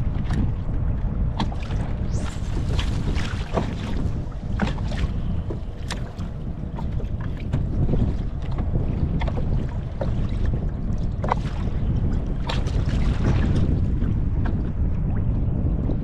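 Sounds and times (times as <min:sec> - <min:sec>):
water lapping against hull: 0:00.0 - 0:16.0
wind buffeting microphone: 0:00.0 - 0:16.0.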